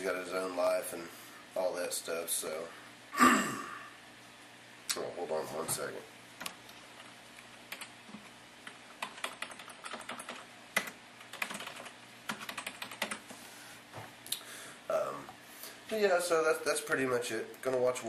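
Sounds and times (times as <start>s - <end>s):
computer keyboard typing: 7.7s - 13.3s.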